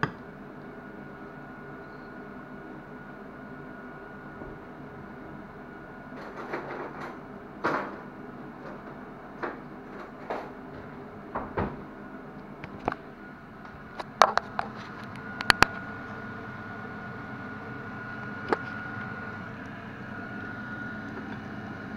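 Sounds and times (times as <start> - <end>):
steady background hum: 0.0 - 21.9
kitchen utensils and dishes clattering: 6.2 - 8.0.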